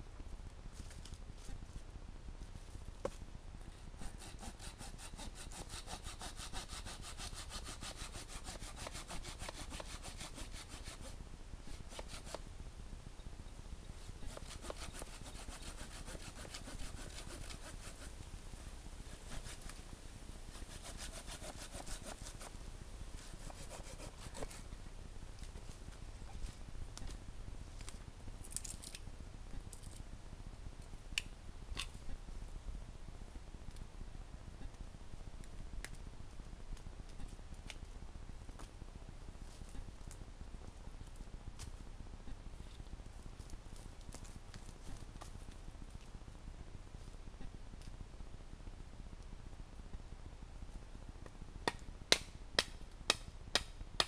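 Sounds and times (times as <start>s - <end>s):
hand saw cutting wood: 4.0s - 12.4s, 14.2s - 18.1s, 20.6s - 22.5s, 23.4s - 24.6s.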